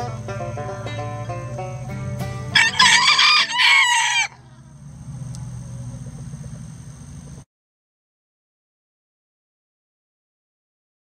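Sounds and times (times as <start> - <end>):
plucked-string background music: 0.0 - 5.5
low steady hum: 0.0 - 7.5
rooster crowing: 2.5 - 4.8.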